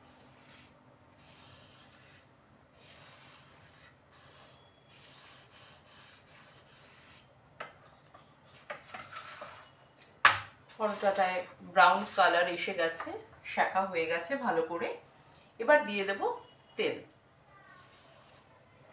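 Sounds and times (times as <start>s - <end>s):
spatula scraping in a pan: 8.8s - 9.8s, 10.7s - 12.7s, 17.8s - 18.5s.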